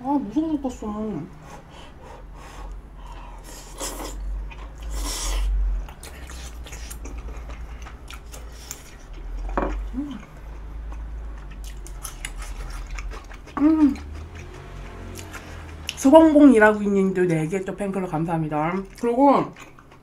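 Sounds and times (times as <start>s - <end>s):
chewing: 2.0s - 20.0s
wet mouth noises: 3.4s - 16.1s.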